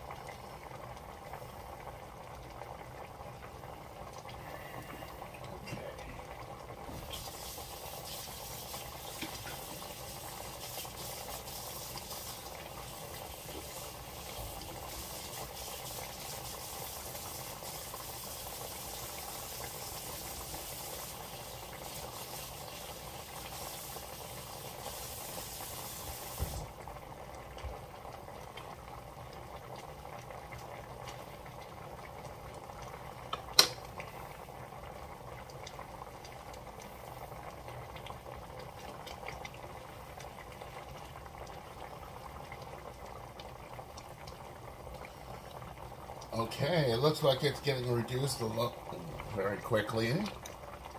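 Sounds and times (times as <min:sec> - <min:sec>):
sauce boiling and hissing: 0:00.0 - 0:50.9.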